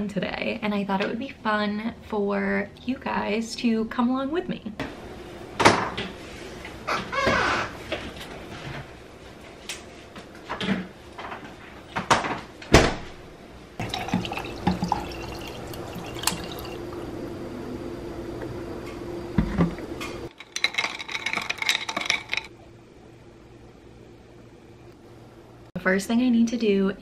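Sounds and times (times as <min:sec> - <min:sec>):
bottles knocking and clunking: 0:13.8 - 0:16.8, 0:20.3 - 0:22.5
ice clinking against glass: 0:13.8 - 0:16.8
liquid pouring into glass: 0:13.8 - 0:17.0.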